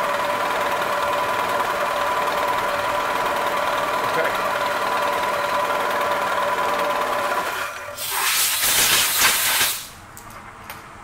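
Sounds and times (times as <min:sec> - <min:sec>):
compressed air blow gun hissing: 0:08.0 - 0:09.9.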